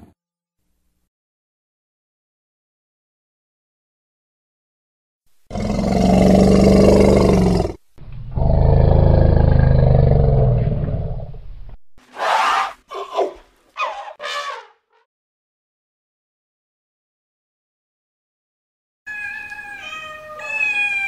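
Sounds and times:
large animal roaring: 5.5 - 11.4.

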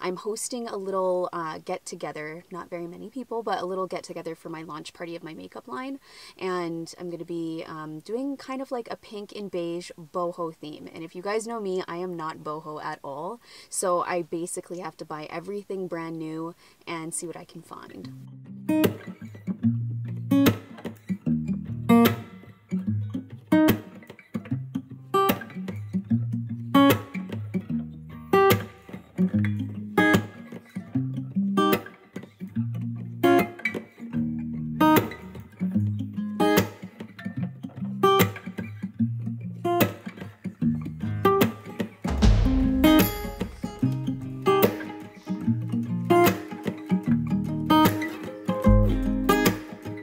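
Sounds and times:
plucked guitar: 17.8 - 50.0
bass line with steady beat: 42.1 - 44.5, 48.7 - 49.5.

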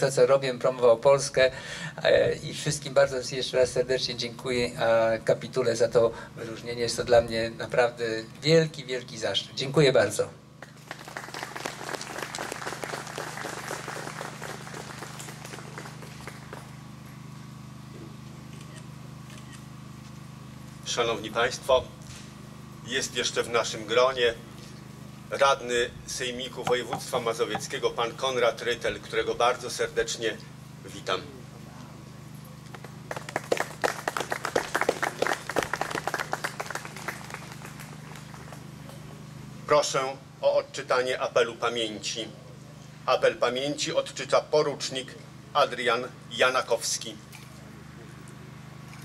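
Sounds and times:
steady low hum: 0.0 - 49.0
crowd applauding: 10.6 - 16.8, 32.7 - 38.7.

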